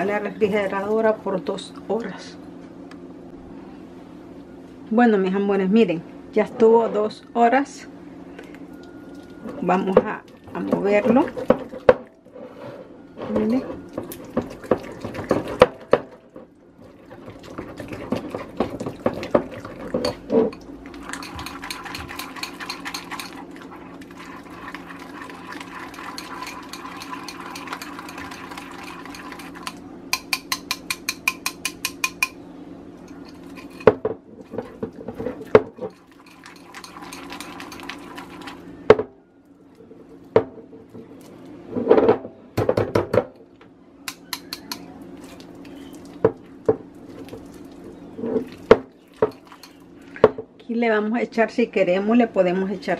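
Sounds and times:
whisk scraping glass bowl: 16.9s - 29.8s, 34.5s - 38.6s, 48.2s - 49.8s.

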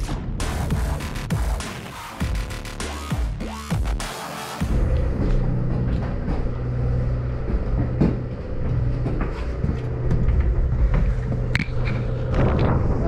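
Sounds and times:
boat engine droning: 4.6s - 13.0s.

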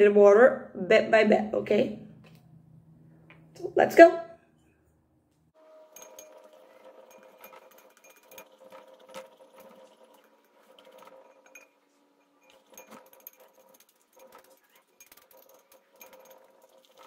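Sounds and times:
knife stirring slime in bowl: 5.9s - 17.0s.

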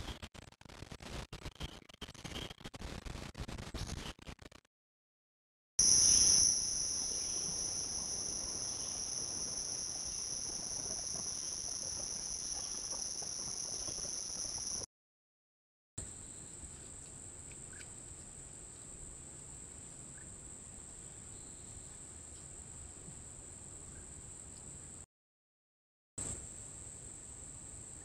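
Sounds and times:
insects buzzing: 5.8s - 14.9s.

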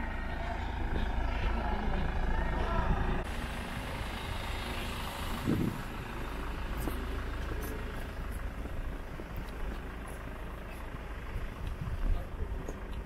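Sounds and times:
low murmur: 0.0s - 13.0s
low outdoor rumble: 0.0s - 13.0s.

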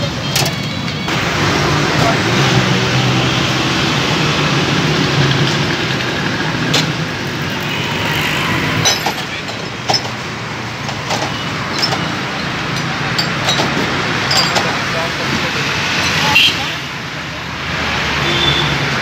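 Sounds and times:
street traffic noise: 0.0s - 19.0s
glass bottles clinking: 8.7s - 10.2s, 10.9s - 15.0s.

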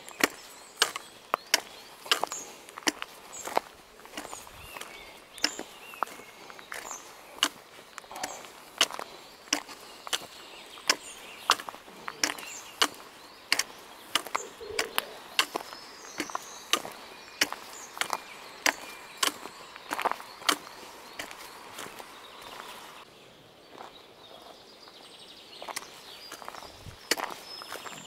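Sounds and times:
birds chirping faintly: 0.0s - 28.0s
clicking footsteps: 0.1s - 23.1s.

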